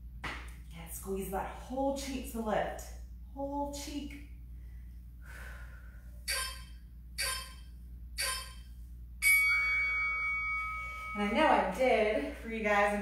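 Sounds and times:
ringing chime: 6.3s - 11.8s.

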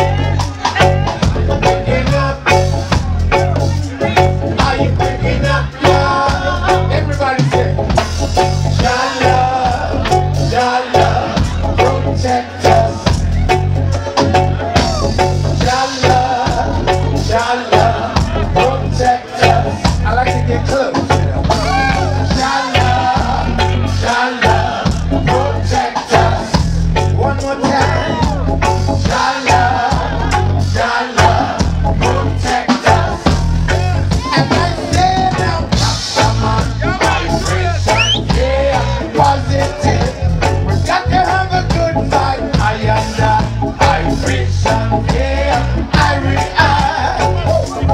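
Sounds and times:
drums and congas: 0.0s - 47.9s
heavy bass line: 0.0s - 47.9s
keyboard: 0.0s - 47.9s
person singing: 0.0s - 47.9s
reggae band playing: 0.0s - 47.9s.

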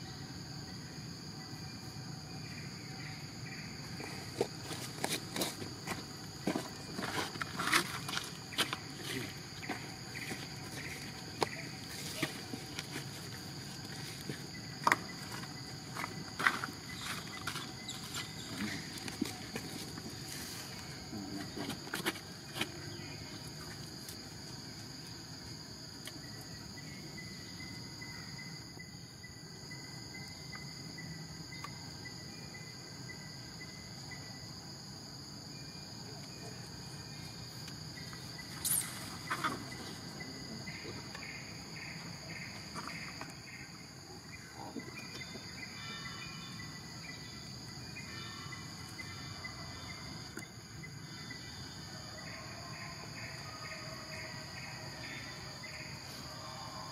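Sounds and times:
insects shrilling: 2.3s - 28.1s, 37.1s - 43.8s.

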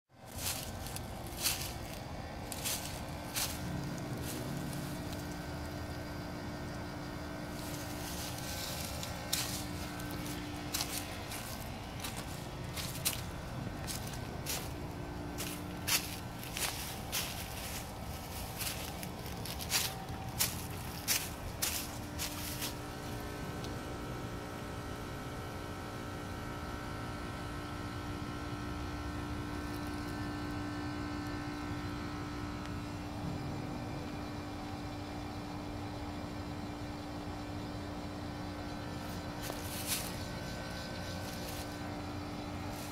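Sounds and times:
air conditioner unit humming: 0.1s - 42.9s
high whine: 0.2s - 25.7s.

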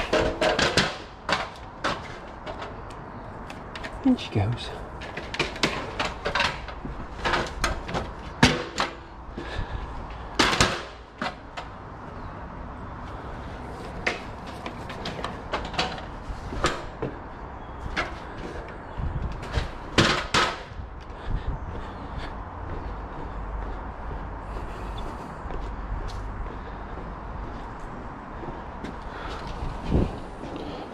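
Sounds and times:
clicks and knocks on timber: 0.0s - 4.0s, 5.0s - 9.1s, 10.4s - 11.8s, 17.9s - 20.8s.

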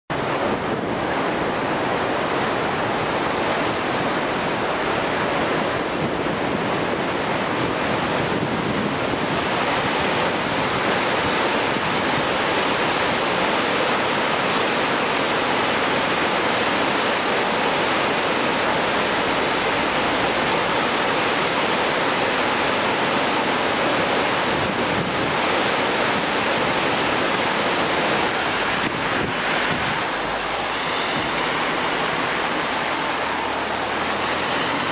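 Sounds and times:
wind on microphone: 0.1s - 14.8s, 23.9s - 34.9s
fast-flowing river water: 0.1s - 34.9s.

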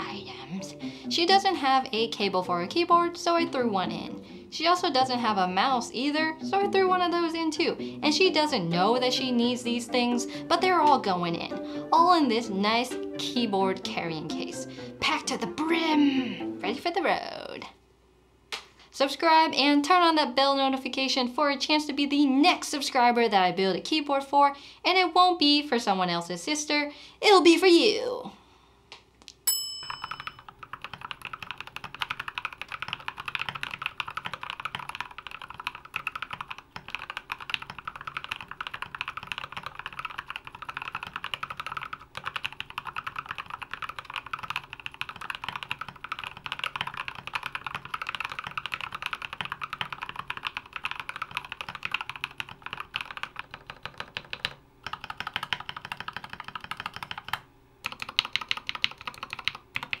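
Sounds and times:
fast mechanical keyboard typing: 30.0s - 60.0s.

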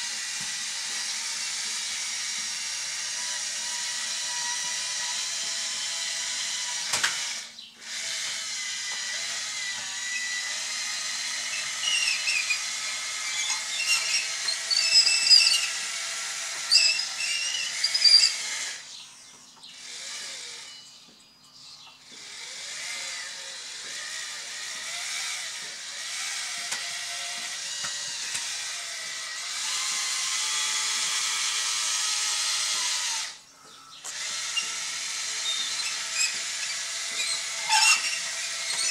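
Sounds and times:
electric motors whining: 0.0s - 38.9s.

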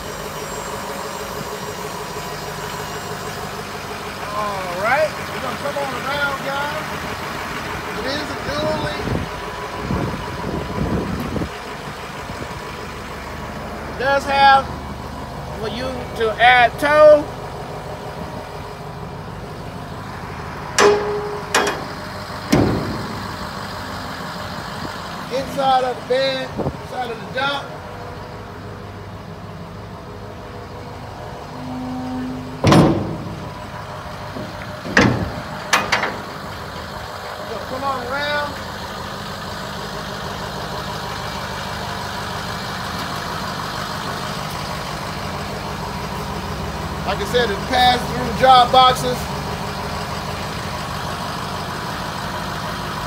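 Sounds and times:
diesel engine idling: 0.0s - 53.0s
metal clanks from truck body: 20.6s - 25.2s, 31.5s - 37.2s.

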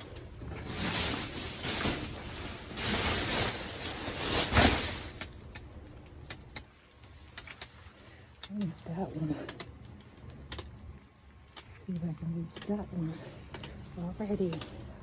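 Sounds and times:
plastic trash bags rustling: 0.0s - 5.6s.

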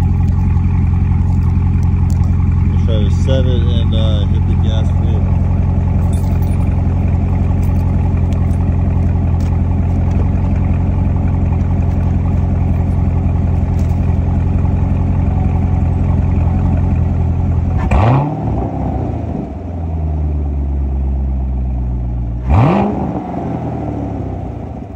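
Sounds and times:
car engine idling: 0.0s - 24.9s
engine revving blips: 17.7s - 19.5s, 22.4s - 24.4s.

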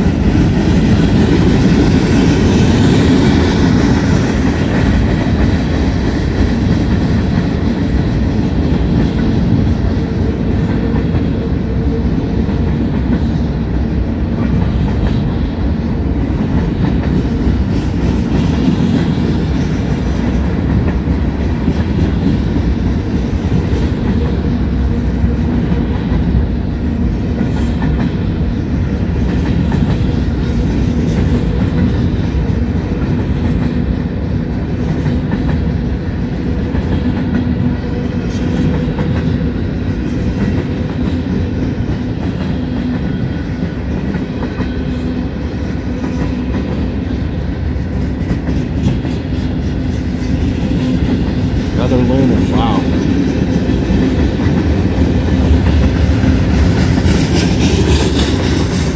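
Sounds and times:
train wheels rumbling on rails: 0.0s - 58.9s.

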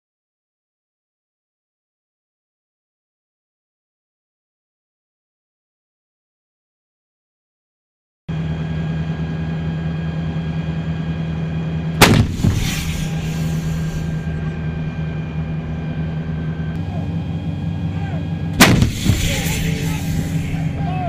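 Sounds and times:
diesel engine hum: 8.3s - 21.0s
howitzer blasts: 12.0s - 16.8s, 18.4s - 21.0s.

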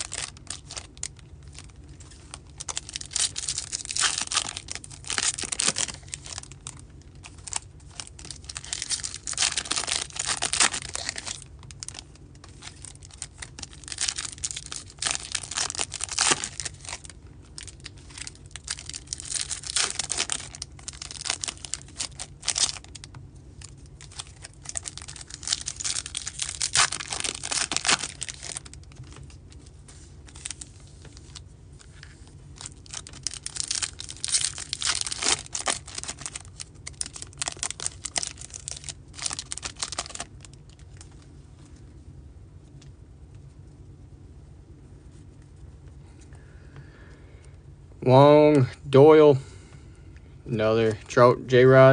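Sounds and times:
foil wrappers crinkling and tearing: 0.0s - 41.3s.

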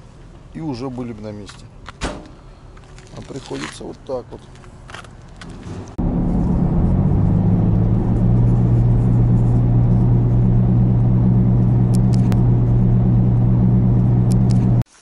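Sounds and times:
engine and road drone in cabin: 5.4s - 14.9s.

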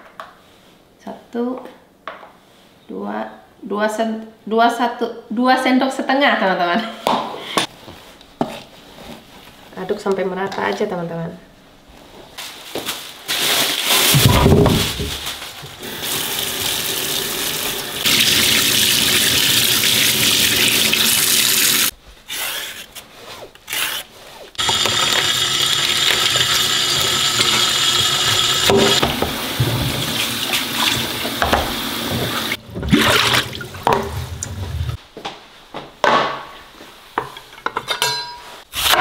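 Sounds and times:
tap water running into sink: 15.8s - 21.9s, 24.6s - 35.0s.

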